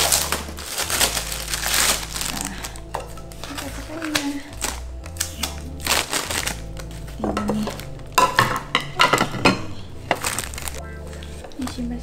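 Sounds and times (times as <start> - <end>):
plastic wrap crinkling: 0.0 - 12.0
soft background music: 0.0 - 12.0
pot knocking on surface: 7.2 - 9.7.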